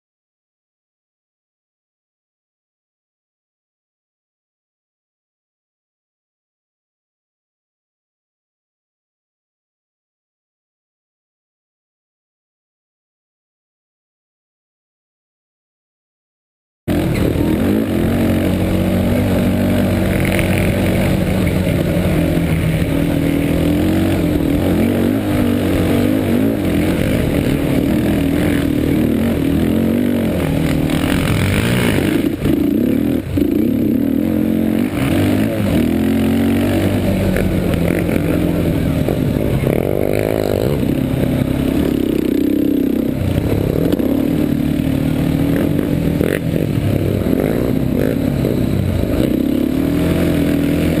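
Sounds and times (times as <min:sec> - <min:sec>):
atv engine revving: 0:16.9 - 0:51.0.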